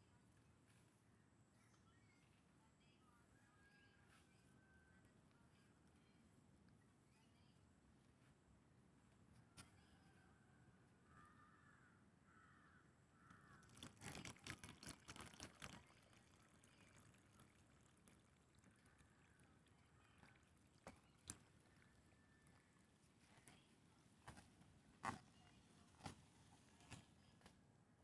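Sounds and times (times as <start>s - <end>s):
crow cawing: 11.1s - 13.7s.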